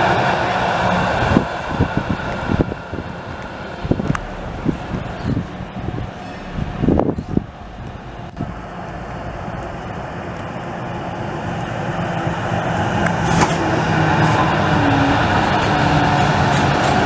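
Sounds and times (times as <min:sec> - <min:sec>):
tram running on track: 0:00.0 - 0:17.0.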